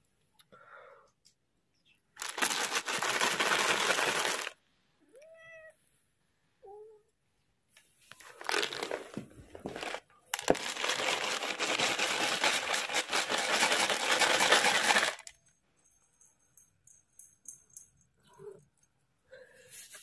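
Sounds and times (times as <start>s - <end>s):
loud rustling and rattling: 2.2s - 4.6s, 8.4s - 15.3s.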